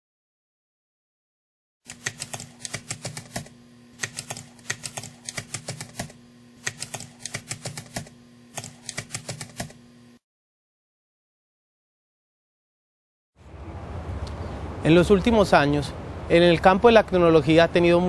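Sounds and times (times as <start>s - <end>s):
keyboard keystroke clicks: 1.9s - 9.8s
steady low hum: 1.9s - 10.2s.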